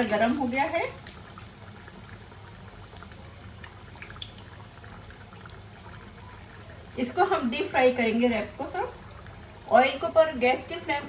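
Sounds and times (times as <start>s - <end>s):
small crackles in oil: 0.0s - 7.6s
deep-frying sizzle in hot oil: 0.0s - 11.0s.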